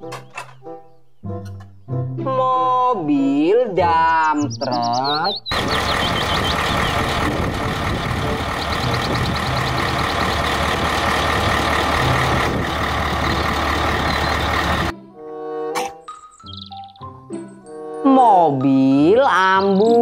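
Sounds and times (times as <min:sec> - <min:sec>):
birds chirping: 0:00.0 - 0:02.0, 0:03.9 - 0:14.9, 0:16.1 - 0:17.9, 0:18.5 - 0:20.0
truck engine running: 0:05.5 - 0:14.9
tinkling children's music jingle: 0:16.0 - 0:18.3.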